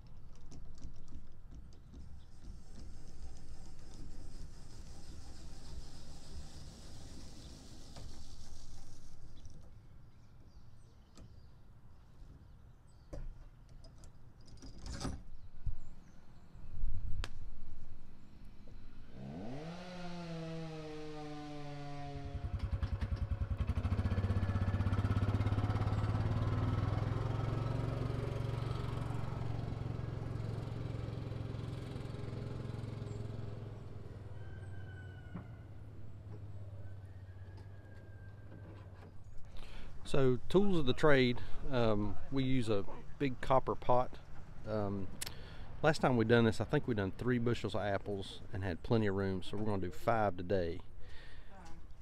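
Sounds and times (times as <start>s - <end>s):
engine running: 18.6s - 34.7s.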